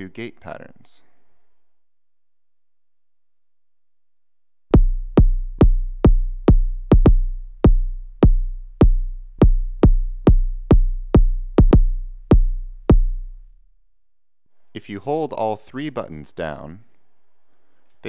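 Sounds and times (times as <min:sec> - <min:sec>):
deep synth kick drum hits: 0:04.7 - 0:13.5.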